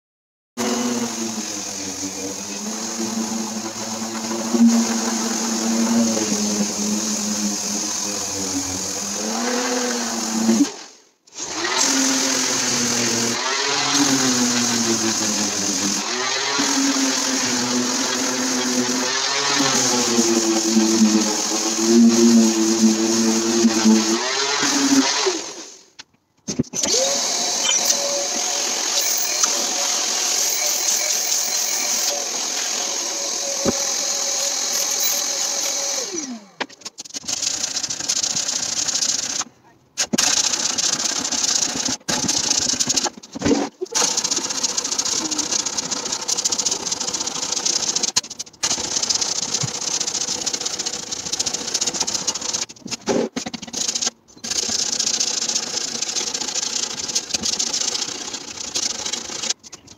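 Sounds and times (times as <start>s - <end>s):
electric sander on wood: 0.6s - 10.8s, 11.4s - 25.7s, 26.9s - 36.5s.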